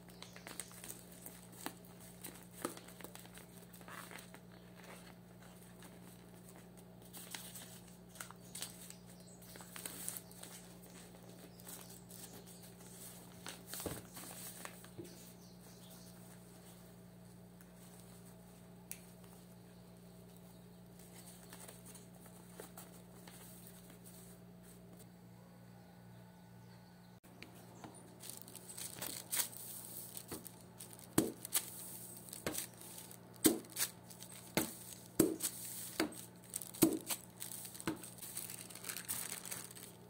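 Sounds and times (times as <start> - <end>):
paper and twine rustling: 0.0 - 15.4, 28.0 - 40.0
low steady hum: 0.0 - 40.0.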